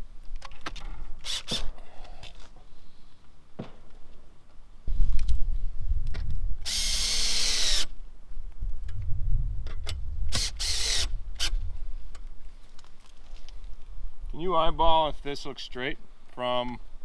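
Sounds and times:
cordless drill bursts: 1.2 - 1.7, 6.6 - 7.9, 10.3 - 11.5.

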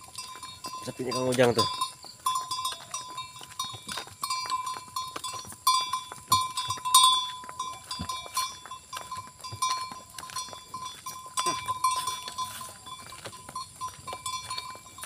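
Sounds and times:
cart knocking and clattering: 0.0 - 15.0.

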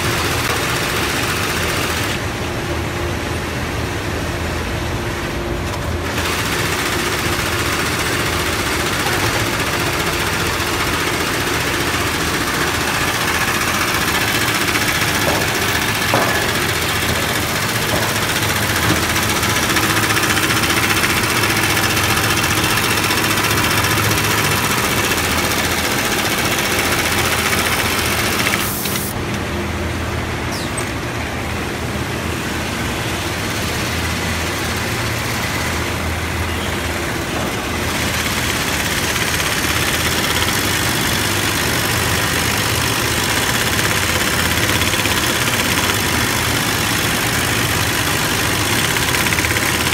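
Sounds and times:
low factory machinery hum: 0.0 - 49.9
sewing machine stitching: 6.0 - 29.1, 37.9 - 49.9.

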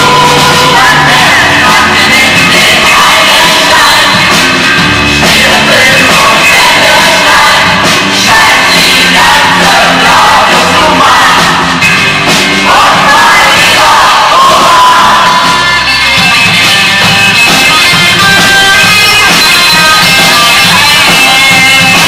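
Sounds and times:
crowd singing together: 0.0 - 16.6
live rock music: 0.0 - 22.0
shouts and cheers: 5.6 - 11.9, 12.6 - 16.6.

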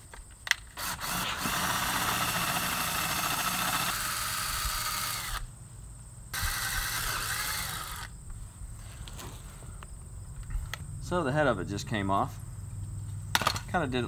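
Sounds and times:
cordless drill drilling metal: 0.8 - 5.5, 6.4 - 8.1.

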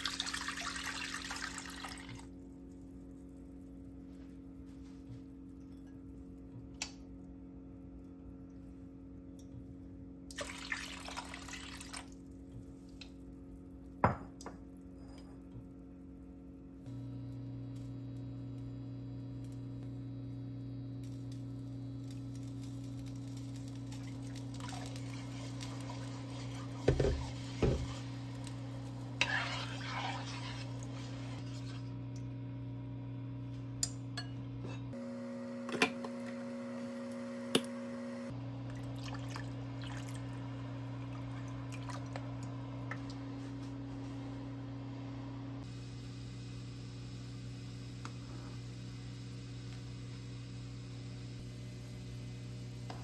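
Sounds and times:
induction cooktop electrical hum: 0.0 - 53.0
spoon stirring liquid: 24.0 - 31.9.

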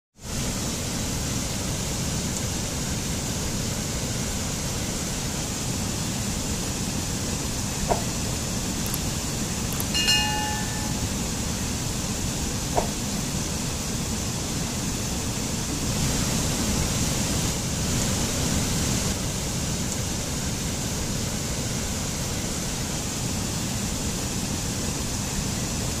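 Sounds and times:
stream rushing over boulders: 0.2 - 26.0
bright ringing chime: 9.8 - 11.2.

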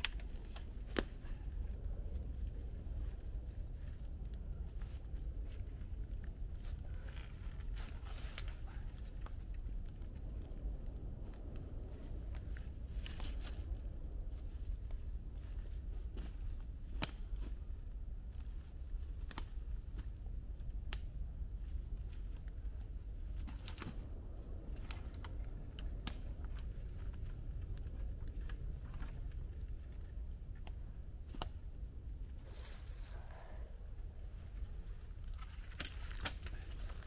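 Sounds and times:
sticks cracking and snapping: 0.0 - 1.5, 7.4 - 13.8, 16.2 - 17.6, 18.3 - 21.2, 23.3 - 31.7, 35.0 - 37.0
steady low rumble: 0.0 - 37.0.

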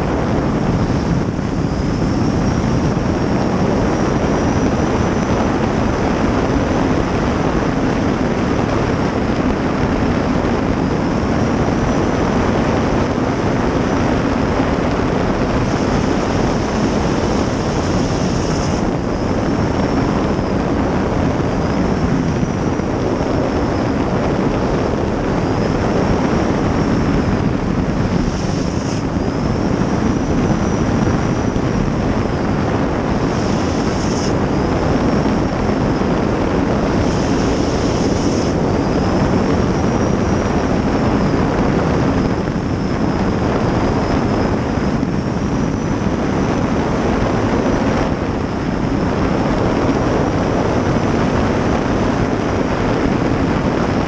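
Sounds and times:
gas turbine whining: 0.0 - 54.0
wind noise: 0.0 - 54.0
water noise: 12.2 - 44.3.

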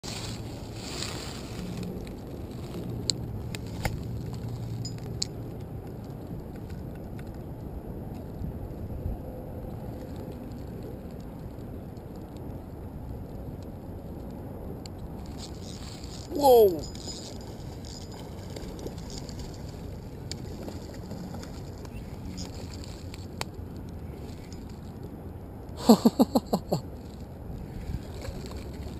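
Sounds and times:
wind rumble on microphone: 0.0 - 25.8, 26.8 - 28.9.

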